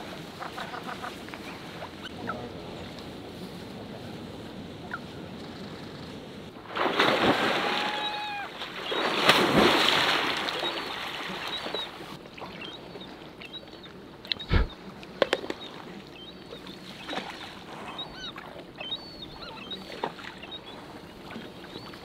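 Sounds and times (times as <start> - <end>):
bear splashing through river water: 6.6 - 12.6
gull calling: 7.5 - 9.0.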